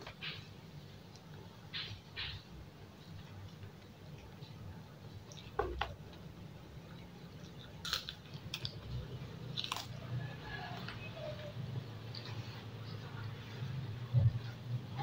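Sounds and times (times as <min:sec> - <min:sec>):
low steady hum: 0:00.0 - 0:15.0
chewing and mouth sounds: 0:03.1 - 0:11.1.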